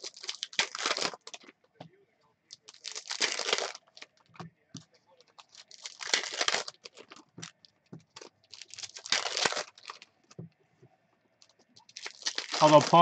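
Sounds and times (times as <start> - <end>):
foil card packs tearing: 0.0 - 1.5, 2.5 - 4.1, 5.4 - 7.3, 8.2 - 10.0, 11.9 - 13.0
cards clicking and rustling: 2.6 - 10.3.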